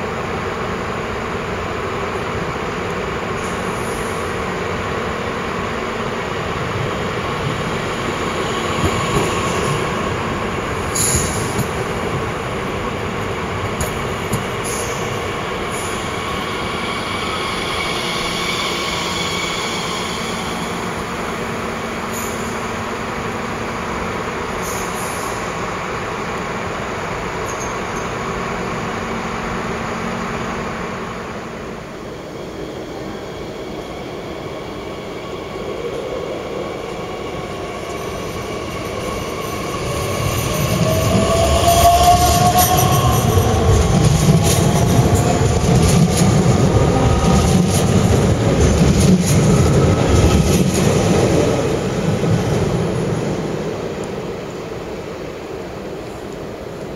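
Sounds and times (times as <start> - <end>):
train motors and wheels rumbling: 0.0 - 56.9
high brake squeal: 15.7 - 21.5.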